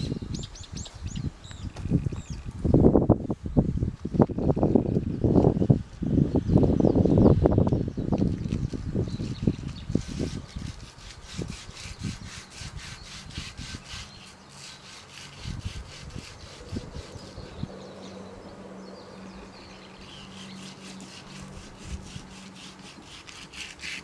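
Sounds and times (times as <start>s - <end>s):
hand tool scraping strokes: 9.4s - 17.7s, 20.0s - 24.0s.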